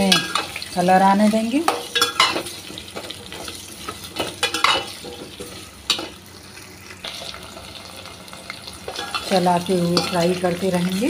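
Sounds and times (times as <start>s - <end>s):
potatoes sizzling in hot oil: 0.0s - 11.0s
metal spoon scraping pot: 8.9s - 10.4s.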